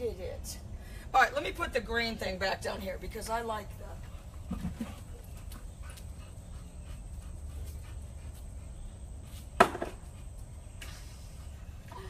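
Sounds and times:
dog panting: 3.8 - 9.4.

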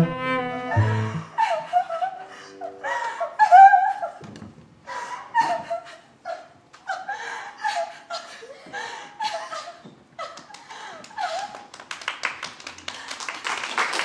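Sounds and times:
bowed cello phrase: 0.0 - 3.2.

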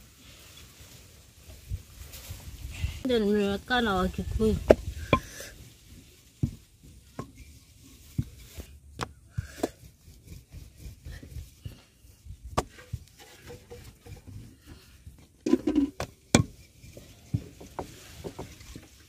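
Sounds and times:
rolling pin rolling dough: 4.6 - 18.6.

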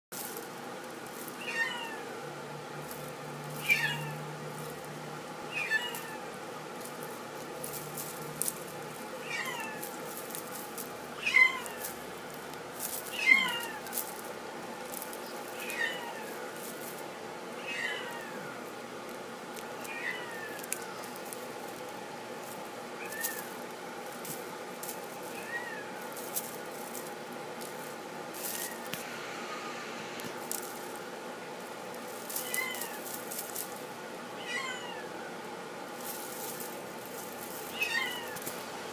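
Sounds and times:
kitten meowing: 1.4 - 2.1, 3.6 - 4.2, 5.5 - 6.3, 9.2 - 9.9, 11.2 - 11.9, 13.1 - 13.9, 15.5 - 16.4, 17.6 - 18.6, 19.8 - 20.6, 23.0 - 23.6, 25.3 - 26.0, 32.4 - 33.0, 34.4 - 35.1, 37.7 - 38.5.

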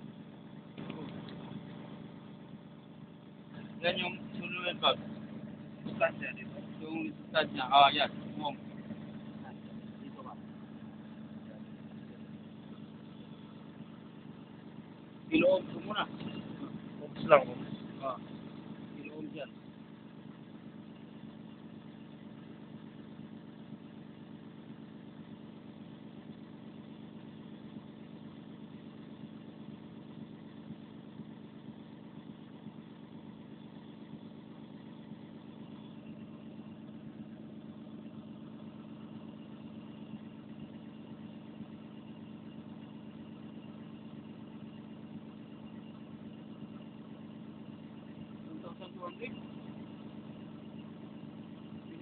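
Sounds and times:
diesel excavator engine idling: 0.0 - 52.0.

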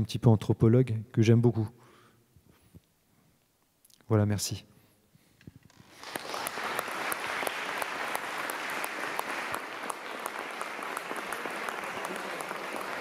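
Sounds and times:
audience applauding: 5.7 - 13.0.

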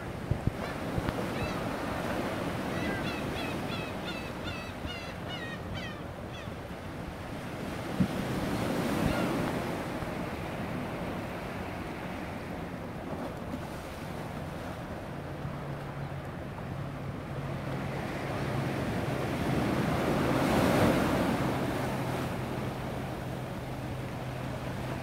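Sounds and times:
wind on microphone: 0.0 - 2.1
gull calling: 0.6 - 1.9, 2.5 - 6.7.

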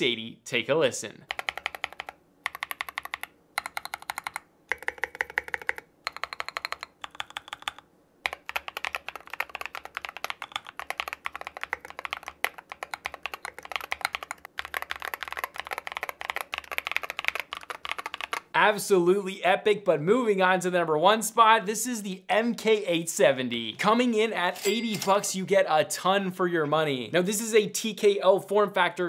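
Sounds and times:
mechanical keyboard typing: 1.3 - 18.5.

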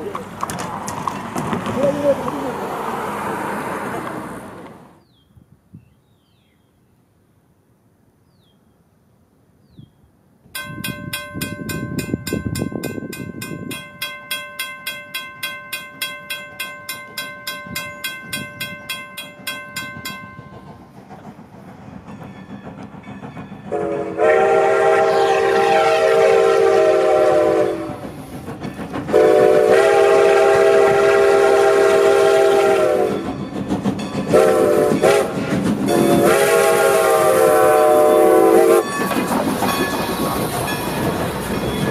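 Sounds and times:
crossing bell ringing: 10.6 - 20.9, 22.0 - 24.3, 33.0 - 36.3, 38.0 - 41.9
train horn blasts: 23.7 - 28.0, 29.1 - 33.3, 34.3 - 38.9.

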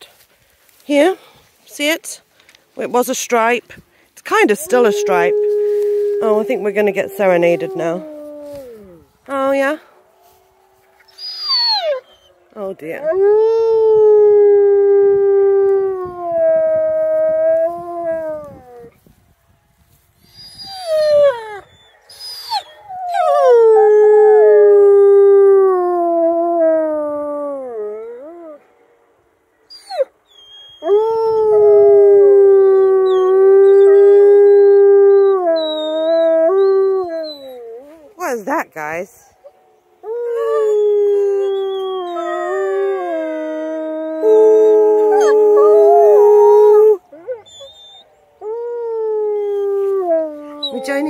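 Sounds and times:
wolfdogs howling: 4.3 - 18.9, 29.7 - 38.4, 39.3 - 51.0.

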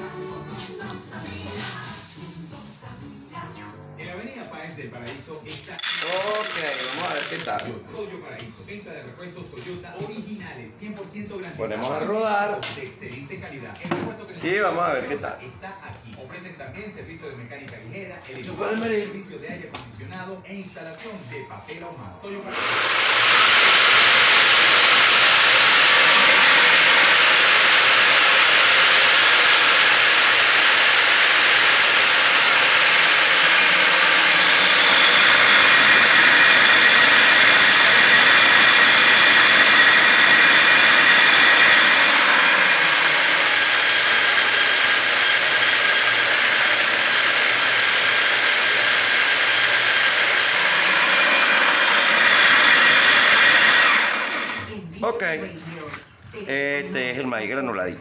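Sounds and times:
electric grain mill running: 5.8 - 7.7, 22.5 - 54.8
high-pitched whine: 24.9 - 44.3.

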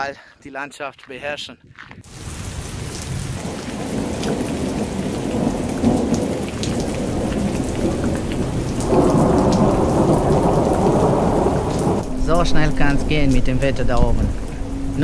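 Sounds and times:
rain drumming on roof and windows: 2.1 - 14.5
heavy rain pouring: 2.1 - 15.0
low rumble: 11.8 - 15.0.

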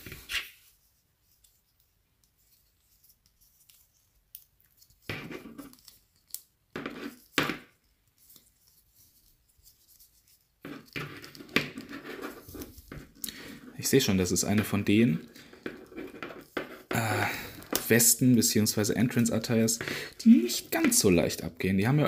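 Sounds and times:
rubber rubbing and scraping on plastic: 8.3 - 17.0.

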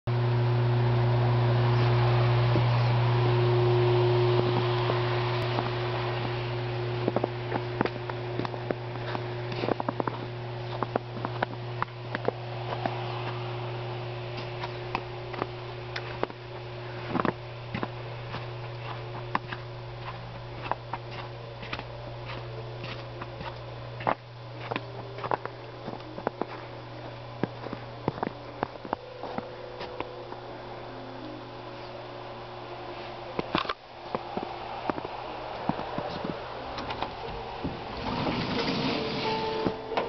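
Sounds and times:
steady low hum: 0.1 - 40.0
footsteps crunching in snow: 4.5 - 31.0, 32.8 - 36.5.

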